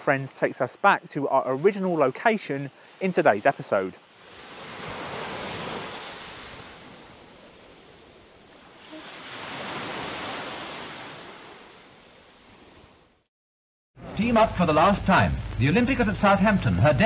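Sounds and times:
small waves washing up beach: 4.0s - 13.2s.

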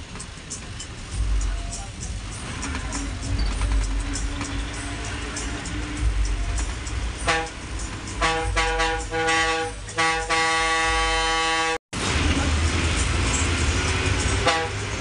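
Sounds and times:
bus engine and road noise: 0.0s - 15.0s
bus air horn blasts: 7.1s - 11.8s, 14.4s - 15.0s.

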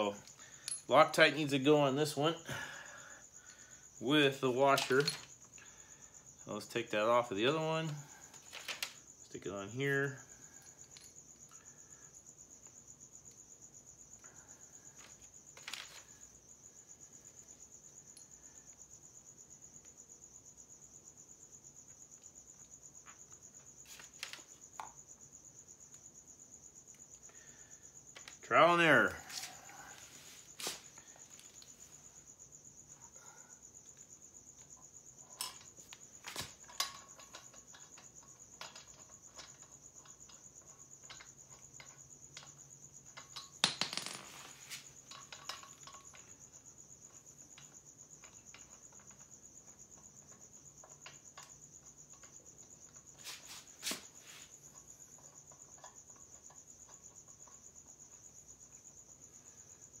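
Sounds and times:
crickets chirping: 0.0s - 60.0s
small metal clicks and clinks: 0.2s - 0.9s, 34.7s - 43.9s, 45.1s - 46.3s.

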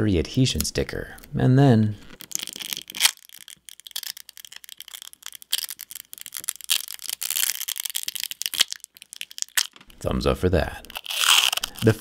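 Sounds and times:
adhesive sticker crackling and peeling: 2.0s - 9.9s, 10.8s - 12.0s.

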